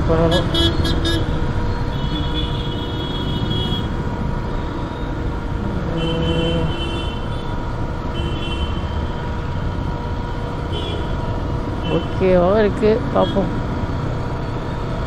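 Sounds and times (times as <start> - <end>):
vehicle horns beeping: 0.0 - 5.2, 5.9 - 9.3, 10.6 - 12.4, 13.1 - 13.5
motorcycle engine rumble: 0.0 - 15.0
road and wind noise: 0.0 - 15.0.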